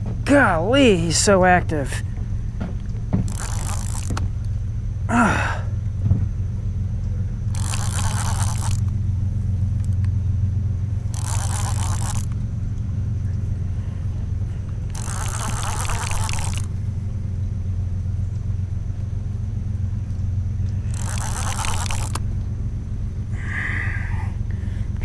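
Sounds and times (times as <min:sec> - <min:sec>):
fishing reel cranking: 0:03.2 - 0:04.4, 0:07.5 - 0:09.0, 0:11.0 - 0:12.4, 0:14.9 - 0:16.8, 0:20.6 - 0:22.3
low rumble: 0:12.1 - 0:25.0.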